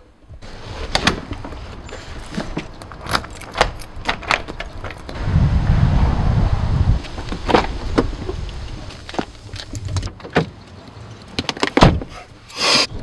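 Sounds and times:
loud low rumble: 5.1 - 7.3.

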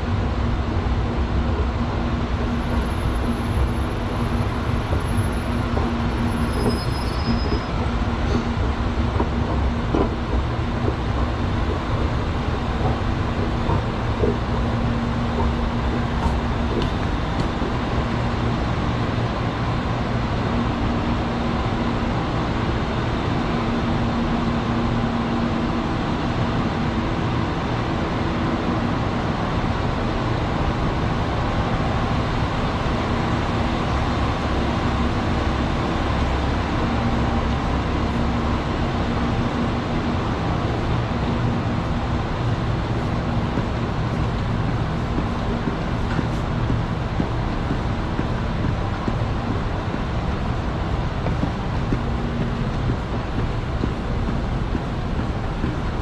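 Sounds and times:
low mechanical hum and rumble: 0.0 - 56.0.

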